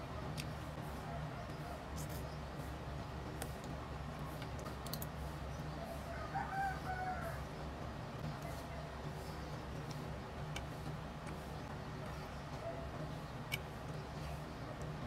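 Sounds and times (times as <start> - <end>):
steady low hum: 0.0 - 15.0
rooster crowing: 5.8 - 7.5.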